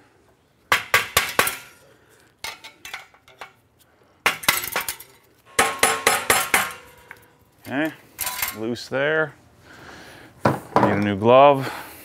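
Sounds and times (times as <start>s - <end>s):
metal tool knocking on exhaust clamp: 5.5s - 7.2s.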